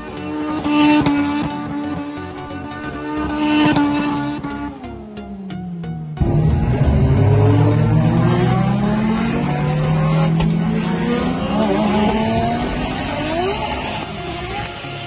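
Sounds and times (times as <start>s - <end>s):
car engine accelerating hard: 6.2s - 15.0s.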